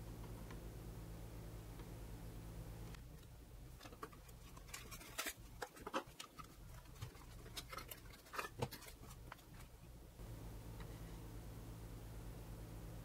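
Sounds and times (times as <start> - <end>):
cardboard rustling: 3.8 - 9.8.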